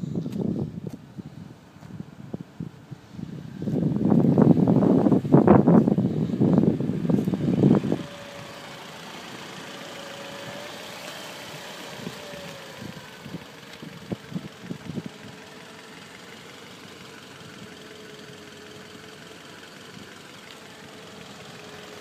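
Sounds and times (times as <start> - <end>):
wind buffeting microphone: 0.0 - 16.4
car engine idling: 0.1 - 22.0.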